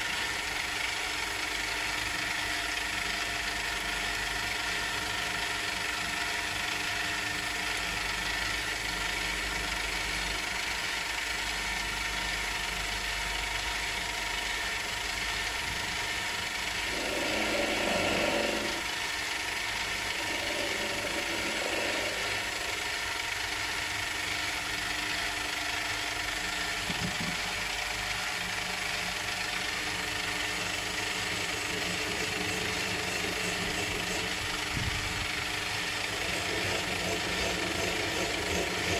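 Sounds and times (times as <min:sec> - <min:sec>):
metal lathe motor whine: 0:13.4 - 0:38.9.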